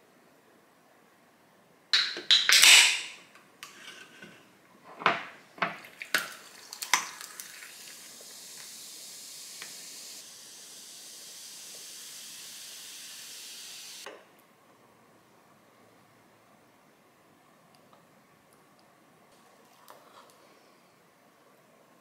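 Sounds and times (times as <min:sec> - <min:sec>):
soda fizzing: 0:05.8 - 0:14.1.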